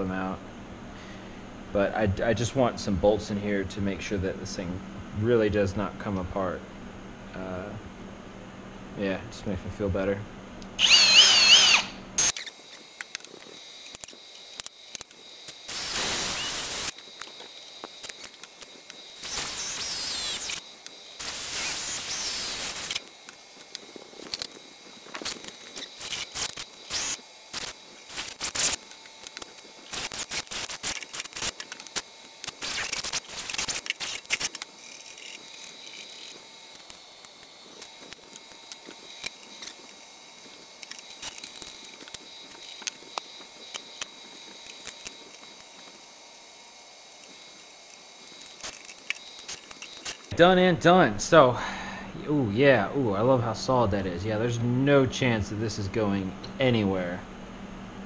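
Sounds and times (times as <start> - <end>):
cordless drill whining: 10.7 - 12.5, 15.7 - 16.9, 19.2 - 20.6, 21.2 - 23.0
drill chuck clicking and rattling: 10.8 - 12.4.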